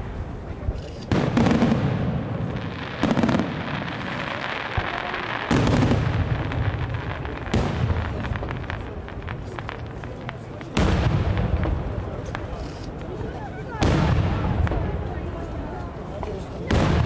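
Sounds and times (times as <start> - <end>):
firework crackling: 0.0 - 17.0
firework booms with echo: 1.1 - 12.6, 13.8 - 15.2, 16.7 - 17.0.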